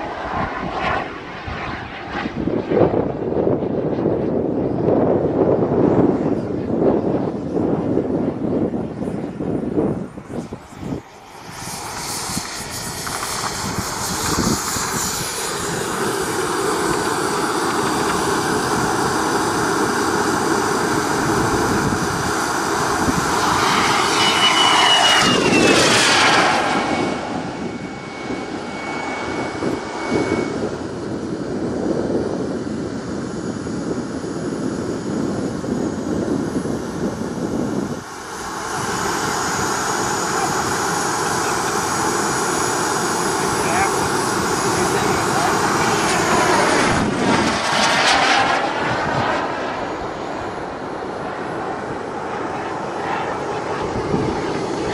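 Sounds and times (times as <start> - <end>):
model jet turbine whine: 0.0 - 54.9
rush of air: 9.7 - 54.9.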